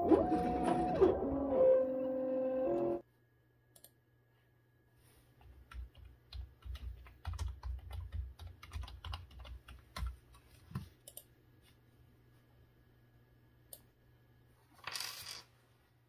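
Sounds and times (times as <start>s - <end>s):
typing on computer keyboard: 5.6s - 10.4s.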